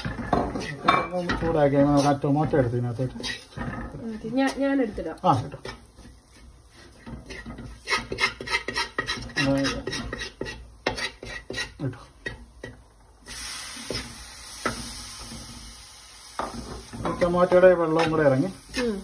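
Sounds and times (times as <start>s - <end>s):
metal spoon scraping a pan: 0.0s - 19.0s
tomatoes sizzling in a pan: 0.0s - 19.0s.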